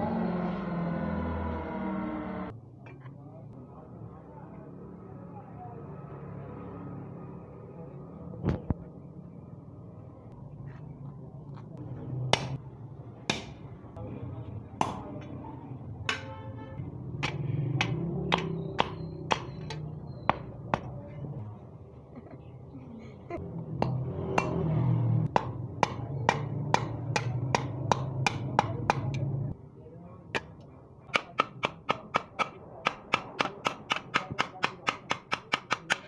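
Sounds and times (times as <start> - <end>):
hammer striking steel on anvil: 13.3 - 13.6, 16.1 - 16.4, 17.2 - 20.9, 23.8 - 24.7, 25.3 - 29.3, 30.3 - 36.0.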